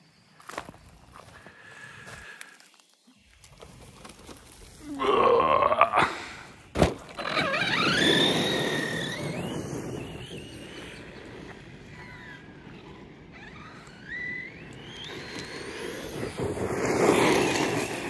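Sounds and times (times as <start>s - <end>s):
electric motor whine: 7.1s - 18.0s.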